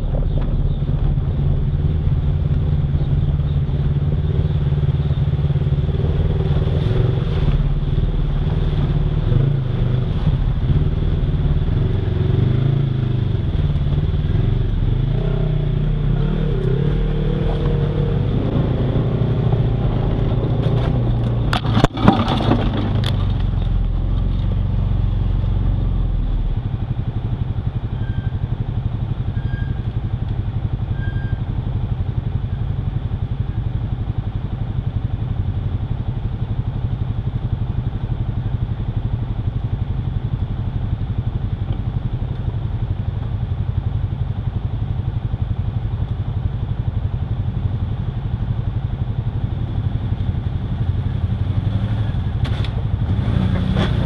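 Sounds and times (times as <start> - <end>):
atv engine running: 0.0 - 54.0
clatter of knocks: 20.6 - 23.8.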